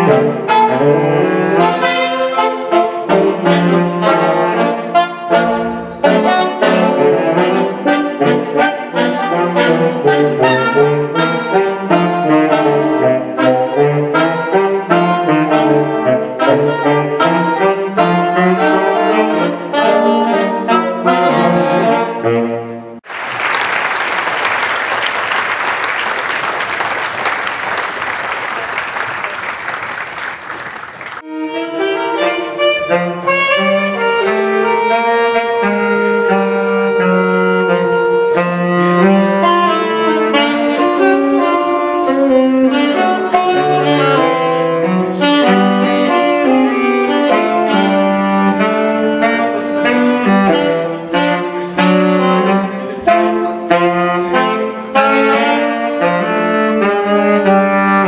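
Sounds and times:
saxophone ensemble playing jazz blues: 0:00.0 - 0:58.0
audience applause: 0:23.0 - 0:31.3.

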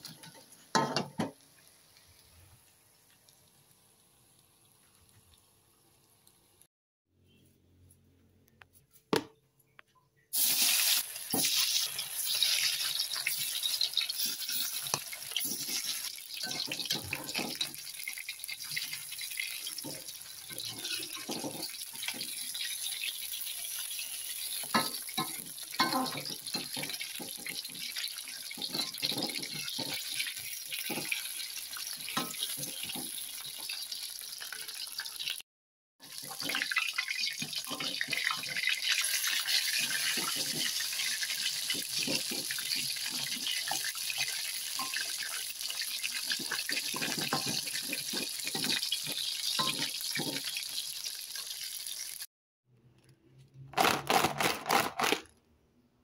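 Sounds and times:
chicken frying in oil: 0:10.3 - 0:35.4, 0:36.0 - 0:52.3
metal spatula scraping a pan: 0:10.7 - 0:23.1, 0:23.7 - 0:33.2, 0:36.2 - 0:45.4, 0:46.1 - 0:50.7.

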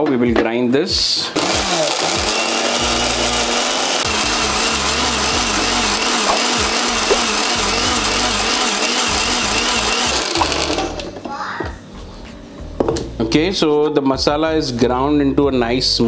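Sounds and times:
mixer grinder running: 0:01.4 - 0:11.2.

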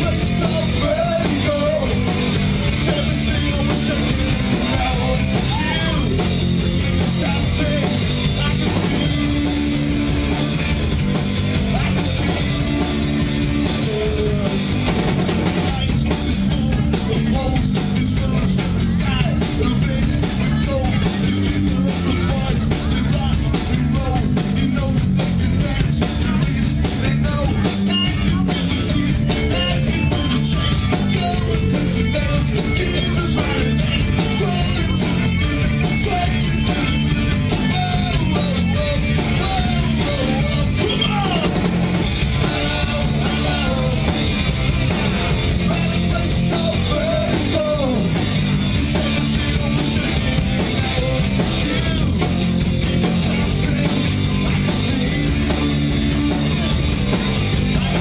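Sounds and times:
drums beating: 0:00.0 - 0:58.0
rock band playing loudly: 0:00.0 - 0:58.0.

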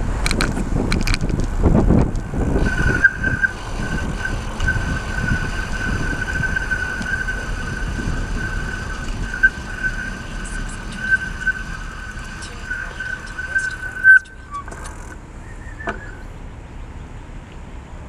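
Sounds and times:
wind rushing past: 0:00.0 - 0:14.2
road traffic: 0:00.0 - 0:18.0
thin high-pitched whine: 0:02.1 - 0:16.2.

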